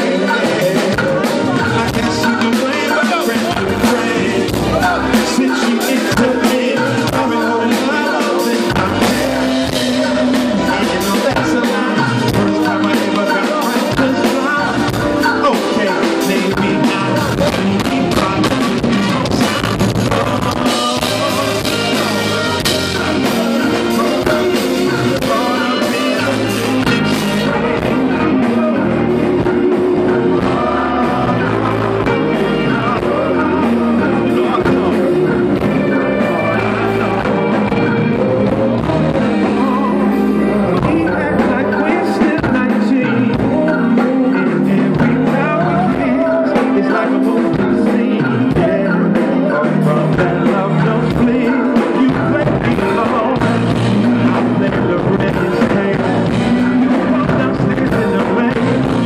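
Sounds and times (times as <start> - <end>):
horns playing: 0.0 - 43.7
drum kit: 0.0 - 59.0
man singing into a microphone: 0.0 - 59.0.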